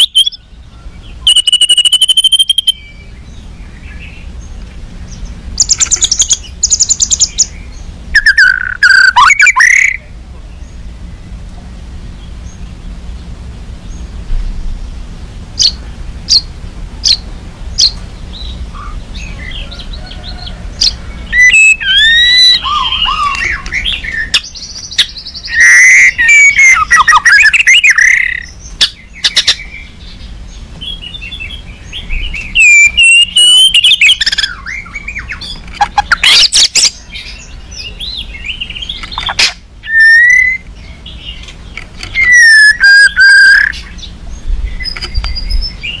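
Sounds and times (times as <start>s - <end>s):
bird whistles and warbles: 0.0s - 3.2s, 5.1s - 10.1s, 17.8s - 30.0s, 30.8s - 46.0s
bird ticking calls: 0.0s - 10.7s, 15.6s - 46.0s
harsh rattling bird notes: 0.0s - 46.0s.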